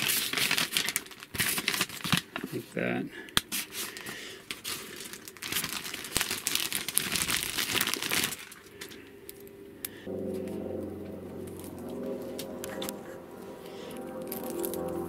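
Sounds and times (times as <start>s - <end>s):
plastic bag crinkling: 0.0s - 2.6s, 3.6s - 9.0s.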